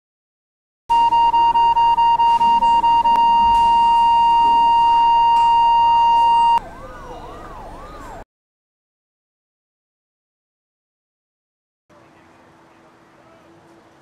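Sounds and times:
patient monitor beeping rapidly: 0:00.9 - 0:06.6
continuous flatline tone: 0:00.9 - 0:08.2
emergency siren rising and falling: 0:00.9 - 0:08.3.

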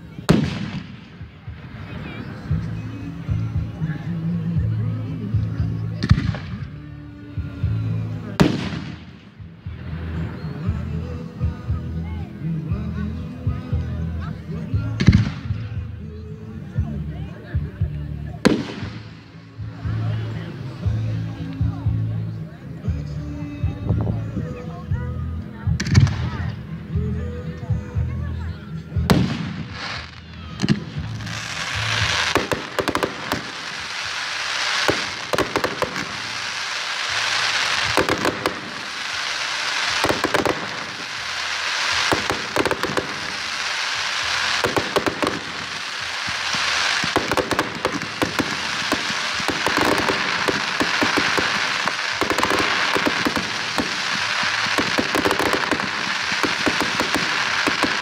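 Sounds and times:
fireworks crackling hiss: 0:00.0 - 0:12.1, 0:18.2 - 0:22.9, 0:29.0 - 0:58.0
firework shells bursting: 0:29.1 - 0:58.0.

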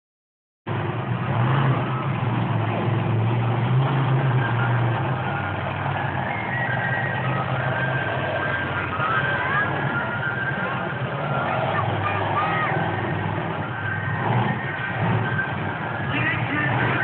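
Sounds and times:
loud truck engine running: 0:00.7 - 0:17.0.

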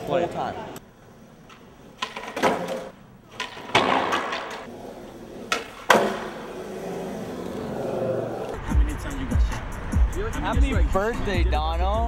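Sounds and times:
skateboard wheels rumbling: 0:00.0 - 0:08.7
skateboard clacks: 0:01.4 - 0:08.6.

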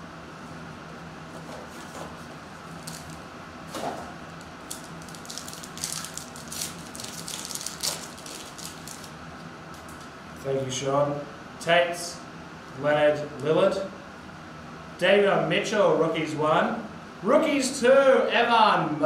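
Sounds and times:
foil wrapper crinkling and tearing: 0:02.8 - 0:03.2, 0:04.6 - 0:09.1.

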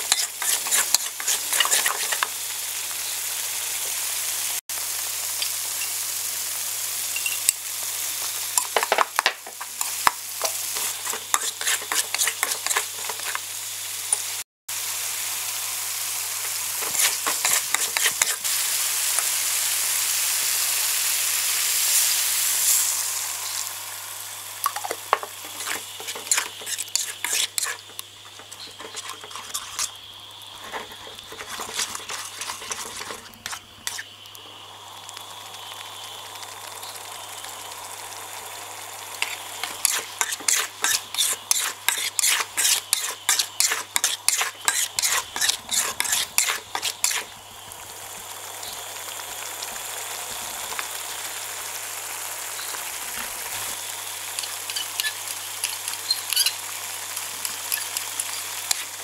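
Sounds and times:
metal spatula scraping wok: 0:00.0 - 0:02.4, 0:08.8 - 0:13.4, 0:16.4 - 0:18.5, 0:24.7 - 0:29.9, 0:30.6 - 0:34.0, 0:39.2 - 0:47.3
pan sizzling: 0:00.0 - 0:59.0.

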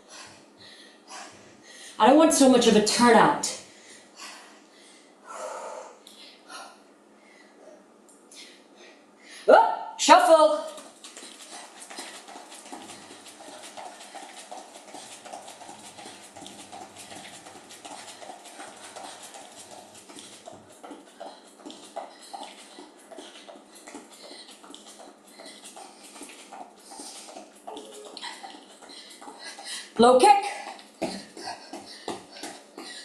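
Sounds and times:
running shoes on exercise mat: 0:10.3 - 0:33.0.

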